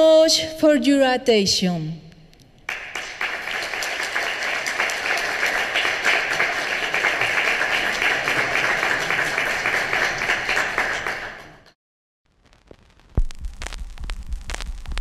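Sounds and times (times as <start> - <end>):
audience applauding: 2.7 - 11.8.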